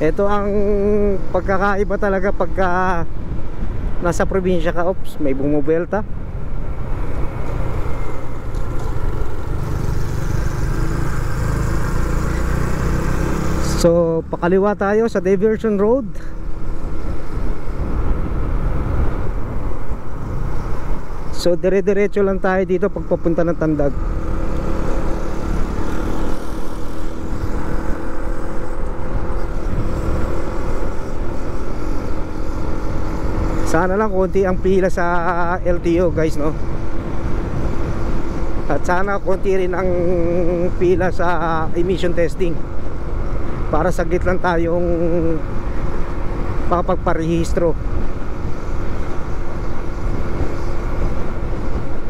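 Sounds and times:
road and wind noise: 0.0 - 52.0
motorcycle engine running: 7.1 - 14.6, 22.7 - 52.0.

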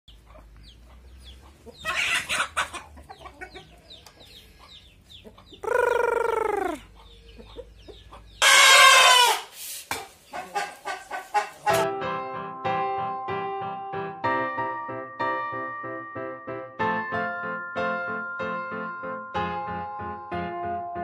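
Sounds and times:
chickens clucking: 0.1 - 11.9
chickens squawking: 0.1 - 11.9
rooster harsh squawk: 5.6 - 6.8, 8.4 - 9.7
rooster crowing: 8.4 - 9.5.

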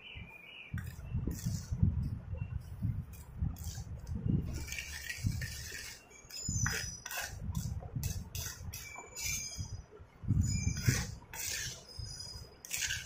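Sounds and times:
spoon scraping clay bowl: 0.8 - 13.0
spoon squelching thick paste: 3.2 - 9.7, 10.4 - 13.0.

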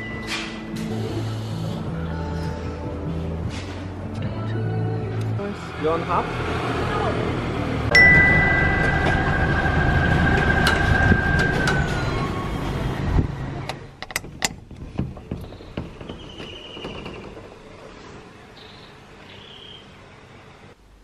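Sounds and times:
steady high tone: 7.9 - 13.0.

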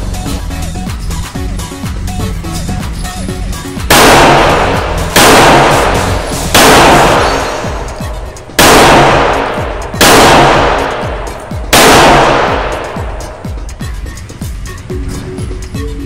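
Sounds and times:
background music: 0.0 - 16.0
revolver shots echoing: 3.8 - 13.4.

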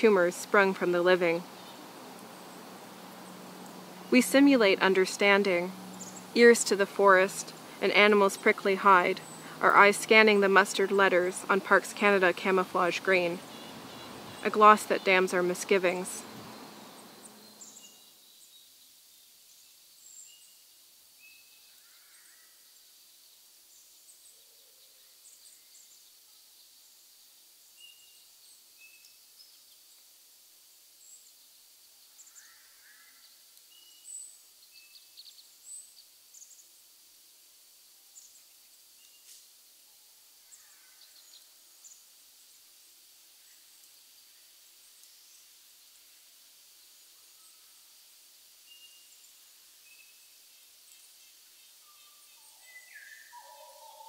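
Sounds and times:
steady low hiss: 0.0 - 54.0
bird chirps and calls: 51.9 - 54.0.

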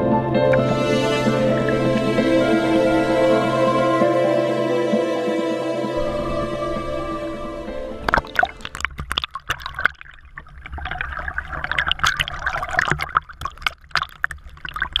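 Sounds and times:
water splashes: 6.0 - 15.0
seawater sloshing and gurgling: 8.0 - 15.0.

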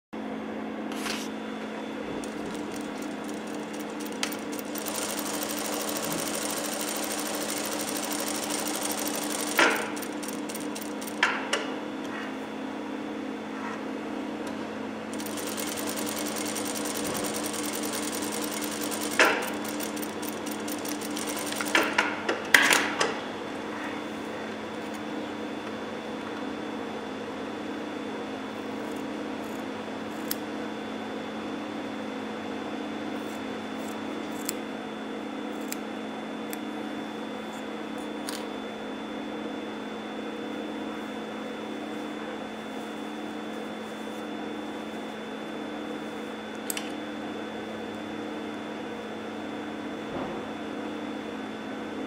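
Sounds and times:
sewing machine stitching: 2.2 - 11.4, 15.1 - 22.1.

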